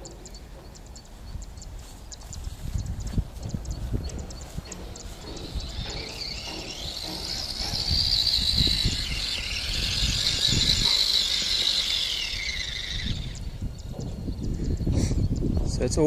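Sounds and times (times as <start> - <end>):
rc car motor whining: 4.1 - 14.9.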